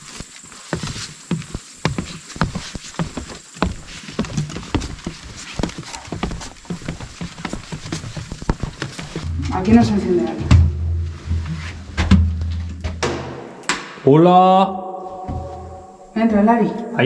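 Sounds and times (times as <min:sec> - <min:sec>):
footsteps on wooden boardwalk: 0:00.0 - 0:13.0, 0:15.1 - 0:16.1.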